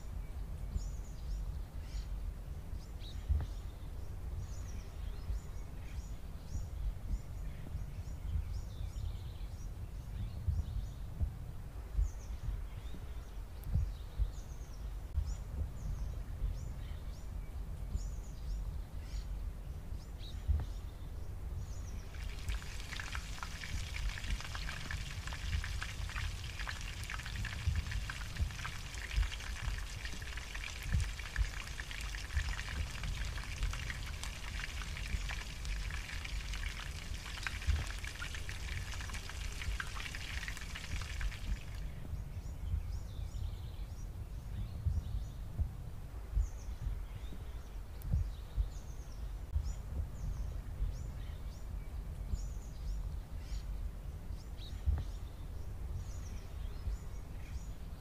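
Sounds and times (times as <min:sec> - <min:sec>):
pakoras sizzling in hot oil: 0:22.1 - 0:41.7.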